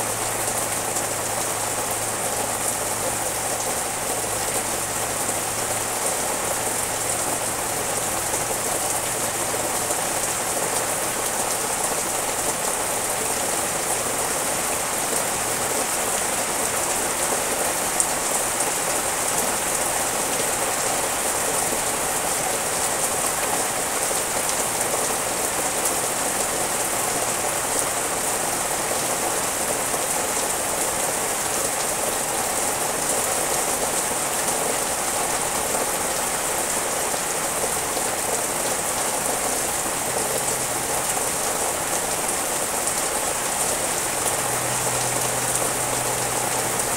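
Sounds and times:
rain falling on leaves: 0.0s - 46.9s.

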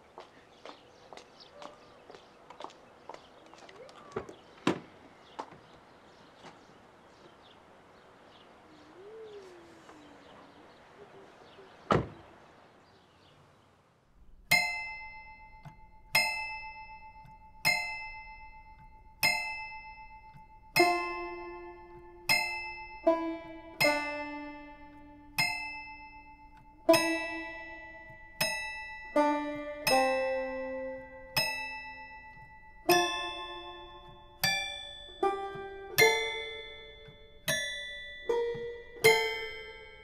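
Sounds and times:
car door opening clicks: 11.9s - 12.2s
car door shutting thud: 11.9s - 12.3s
slow plucked piano-like music: 14.4s - 40.0s.

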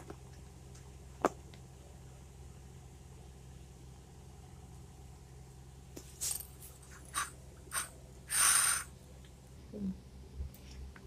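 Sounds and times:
faint low hum: 0.0s - 11.0s.

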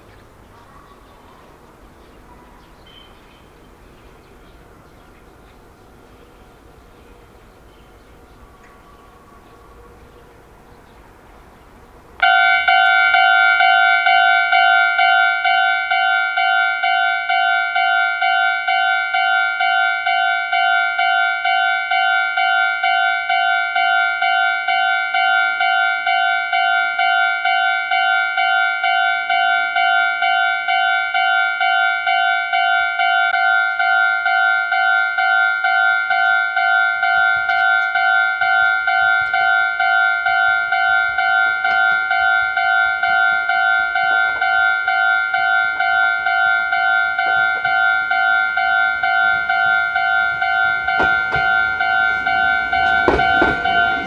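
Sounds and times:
level crossing alarm ringing: 12.2s - 54.0s.

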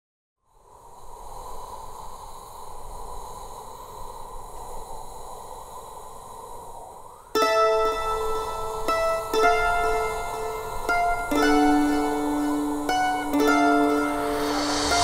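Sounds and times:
airy rushing noise: 0.8s - 15.0s
faint high steady tones: 7.4s - 15.0s.

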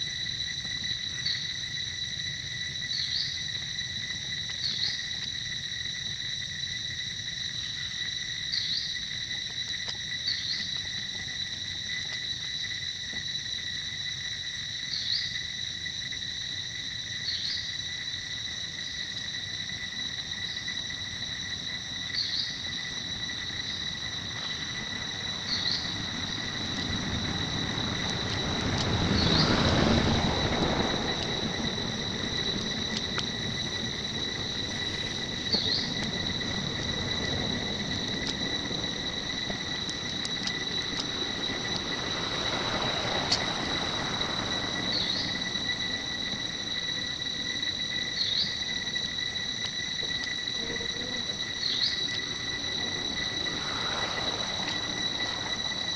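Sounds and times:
forest insects droning: 0.0s - 55.9s
broad swell of noise: 50.5s - 55.9s.

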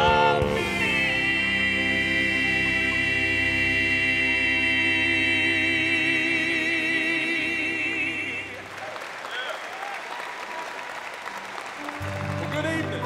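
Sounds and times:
male vocal quartet singing harmony: 0.0s - 8.8s.

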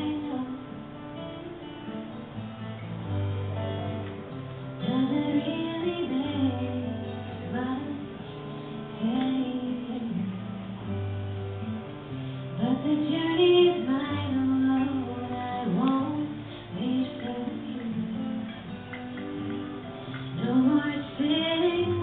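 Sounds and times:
woman singing: 0.0s - 0.9s, 4.8s - 11.1s, 12.5s - 18.8s, 20.1s - 22.0s
guitar accompaniment: 0.0s - 22.0s.

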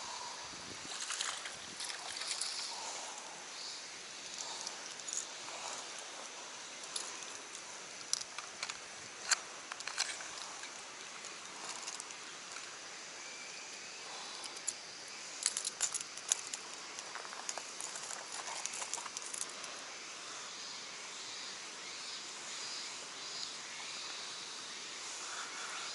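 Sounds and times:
steady hiss: 0.0s - 25.9s
fishing tackle clicks and jingles: 6.8s - 12.2s, 15.4s - 19.5s.

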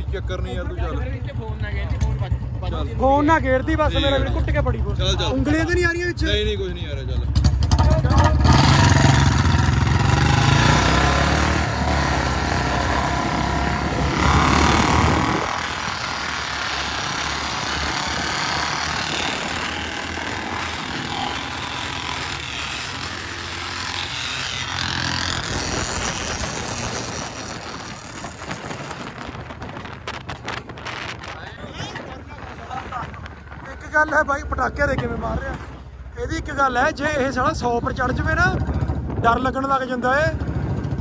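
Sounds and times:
motorcycle engine at speed: 0.0s - 36.1s, 37.2s - 41.0s
road noise: 0.0s - 41.0s
wind rush on microphone: 11.6s - 16.0s, 25.2s - 35.8s, 36.8s - 41.0s.

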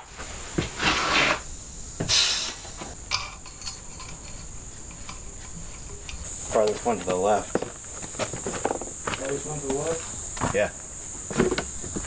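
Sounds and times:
insect chorus trilling: 0.0s - 12.0s.

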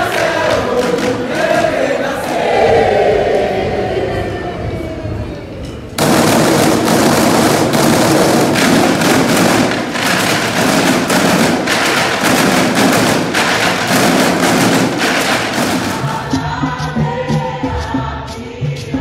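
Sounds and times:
sticks drumming on plastic chairs: 0.0s - 2.6s, 6.0s - 18.9s.

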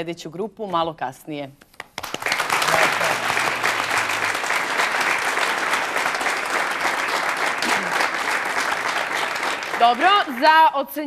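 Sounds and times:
audience applauding: 1.9s - 10.7s.

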